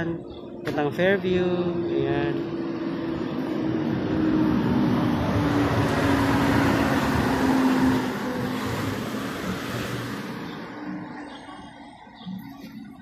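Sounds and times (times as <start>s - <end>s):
vehicle passing by: 1.6s - 11.9s.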